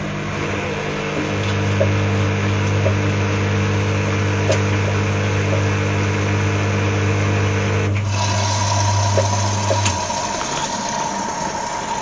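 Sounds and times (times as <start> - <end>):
higher motor whine: 0.0 - 12.0
washing machine drum hum: 1.0 - 3.5, 8.0 - 12.0.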